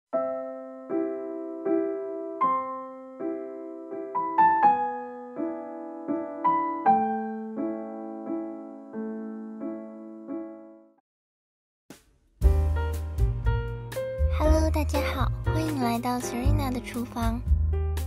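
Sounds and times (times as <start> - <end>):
slow solo piano melody: 0.2 - 11.0.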